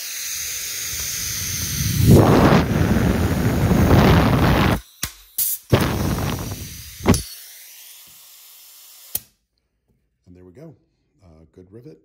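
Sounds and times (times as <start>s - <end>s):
rivet gun air hissing: 0.0s - 9.4s.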